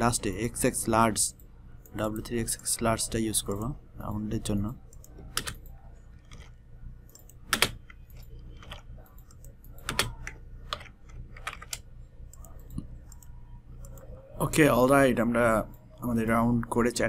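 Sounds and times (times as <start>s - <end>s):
computer keyboard keystrokes: 4.9s - 14.0s.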